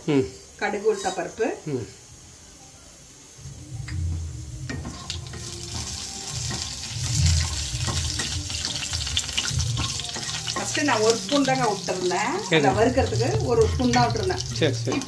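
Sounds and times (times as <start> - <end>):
seeds sizzling in hot oil: 0.2 - 15.0.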